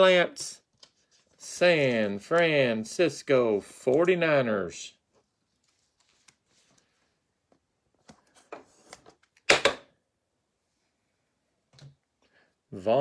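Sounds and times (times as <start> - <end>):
cards rustling and clicking: 0.6 - 2.9, 5.1 - 9.8.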